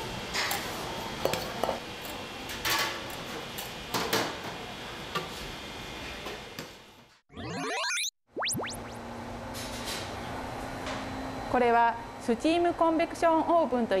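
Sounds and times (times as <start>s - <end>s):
kitchen background noise: 0.2s - 6.8s.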